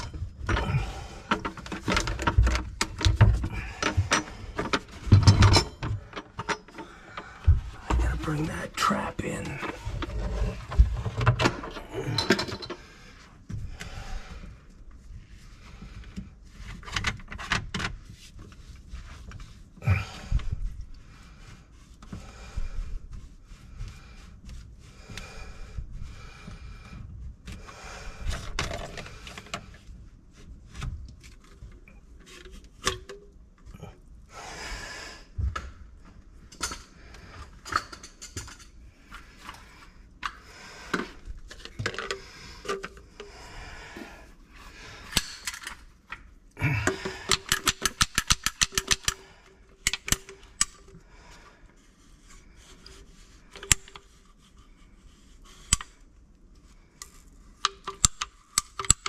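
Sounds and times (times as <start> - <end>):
drain pipe clunking and rubbing: 0.0 - 14.6.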